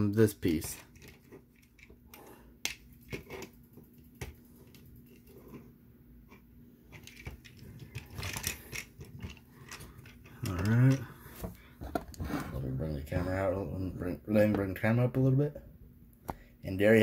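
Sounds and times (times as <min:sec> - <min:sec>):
plastic parts clicking: 0:06.9 - 0:11.0.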